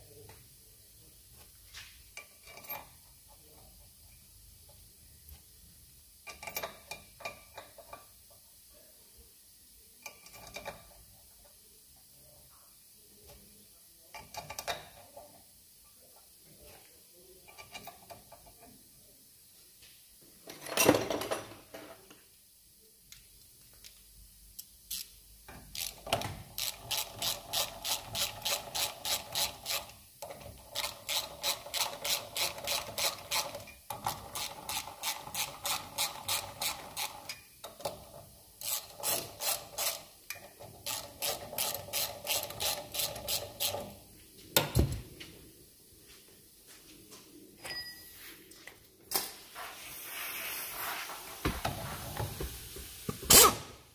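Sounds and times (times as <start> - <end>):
hand ratchet clicking: 24.6 - 38.0, 38.6 - 44.0.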